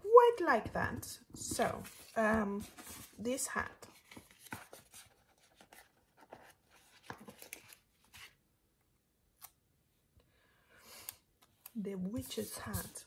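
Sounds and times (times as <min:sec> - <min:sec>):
paper sticker sheet rustling: 0:01.5 - 0:08.4, 0:12.0 - 0:13.0.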